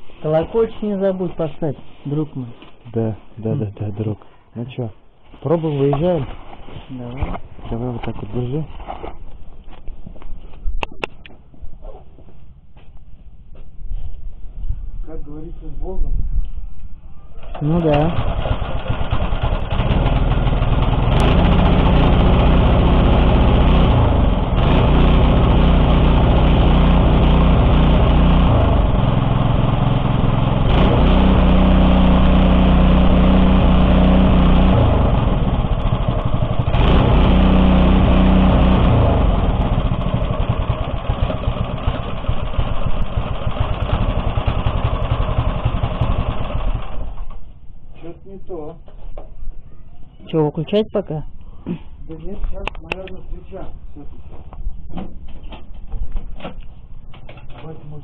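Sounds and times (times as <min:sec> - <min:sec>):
small petrol engine running rough: 0:17.4 - 0:47.4.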